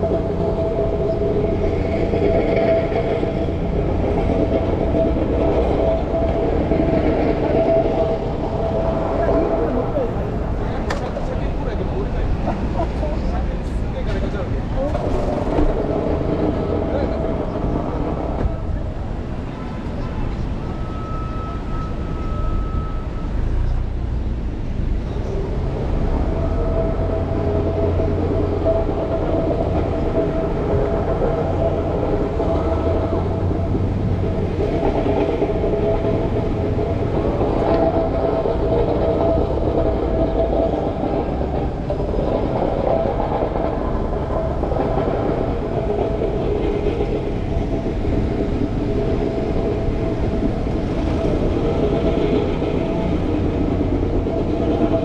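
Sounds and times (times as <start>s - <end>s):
train rumbling: 0.0s - 55.0s.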